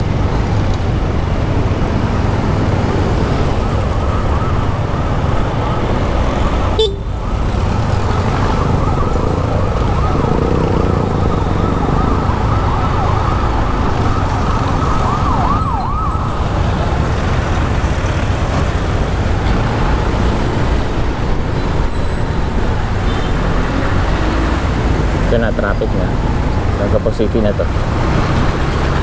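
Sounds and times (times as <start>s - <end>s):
wind and road rumble: 0.0s - 29.0s
siren sweeping up and down: 2.6s - 17.1s.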